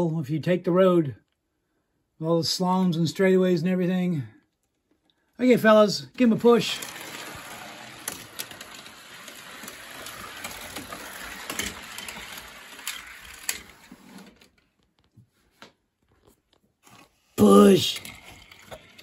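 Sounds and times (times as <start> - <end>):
toy cars rolling on a track: 6.2 - 14.6, 17.4 - 19.0
toy cars clicking together: 6.3 - 14.6, 17.4 - 19.0.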